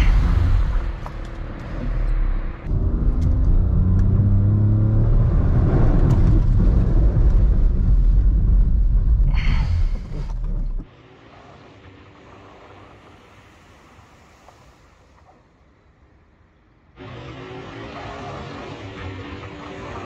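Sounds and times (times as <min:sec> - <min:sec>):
car engine accelerating: 0:00.0 - 0:08.6
heavy low rumble: 0:00.0 - 0:10.9.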